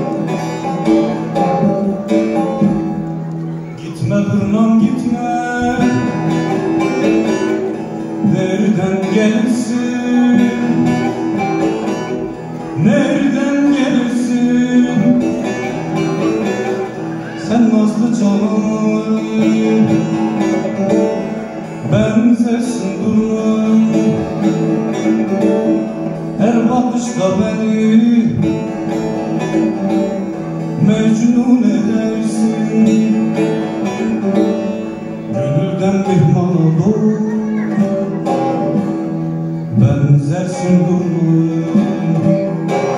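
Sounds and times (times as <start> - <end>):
plucked lute strings: 0.0 - 42.9
man singing slow melody: 3.6 - 11.9, 12.8 - 29.2, 30.7 - 38.8, 39.7 - 42.9.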